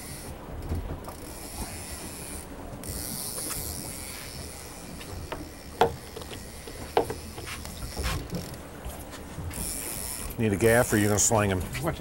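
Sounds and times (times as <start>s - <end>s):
boat engine rumble: 0.0s - 12.0s
sea noise: 0.0s - 12.0s
wind: 0.0s - 12.0s
sharp knocks: 5.3s - 7.5s.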